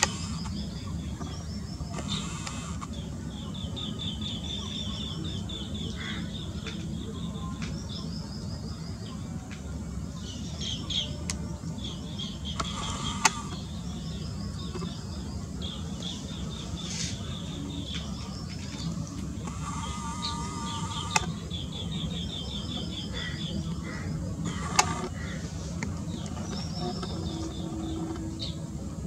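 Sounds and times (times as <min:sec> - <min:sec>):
birds trilling chirps: 0:00.0 - 0:29.0
sharp clicks: 0:12.5 - 0:13.6, 0:19.4 - 0:21.4, 0:24.5 - 0:25.2.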